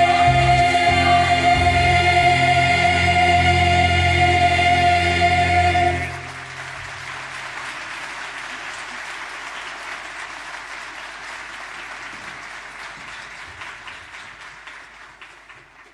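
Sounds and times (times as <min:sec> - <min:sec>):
audience applauding: 0:05.9 - 0:15.9.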